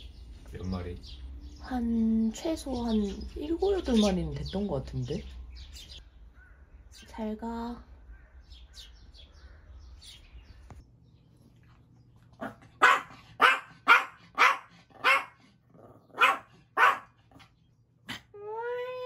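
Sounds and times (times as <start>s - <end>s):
small dog barking: 12.4s - 15.4s, 16.0s - 17.2s.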